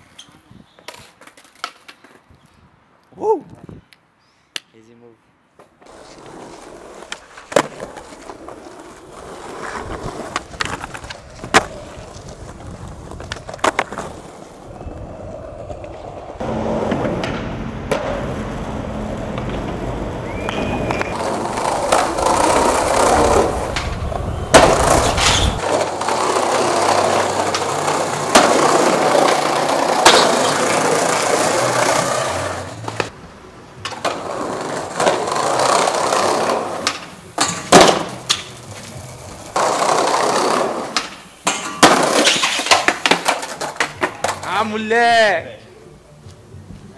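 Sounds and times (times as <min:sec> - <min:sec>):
skateboard wheels rolling on pavement: 0:00.0 - 0:03.0, 0:05.5 - 0:46.9
skateboard knocking on ground: 0:15.8 - 0:18.6, 0:19.2 - 0:31.0, 0:33.8 - 0:38.9, 0:39.6 - 0:44.5.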